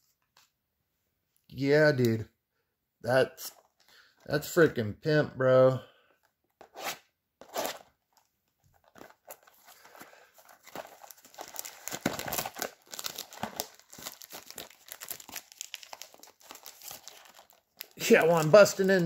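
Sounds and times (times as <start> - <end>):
foil wrapper crinkling and tearing: 8.8 - 19.0.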